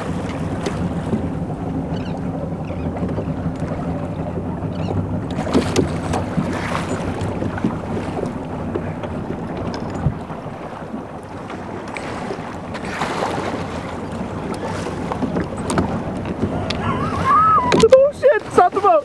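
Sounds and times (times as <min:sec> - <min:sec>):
wind on microphone: 0:00.0 - 0:18.6
boat engine running: 0:00.0 - 0:19.0.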